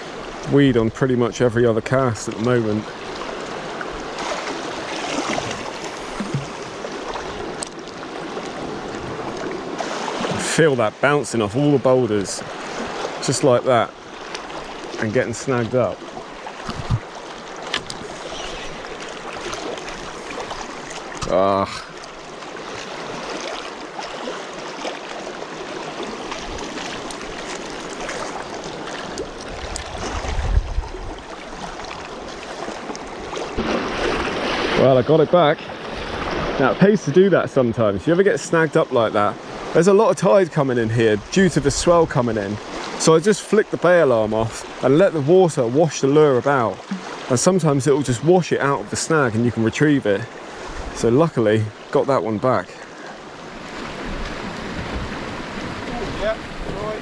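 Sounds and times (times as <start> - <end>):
sea water washing around rocks: 2.3 - 37.2.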